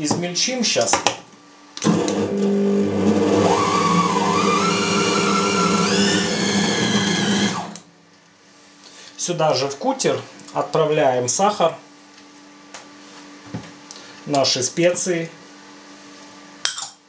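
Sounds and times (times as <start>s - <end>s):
bowl cutter motor whine: 1.8s - 7.9s.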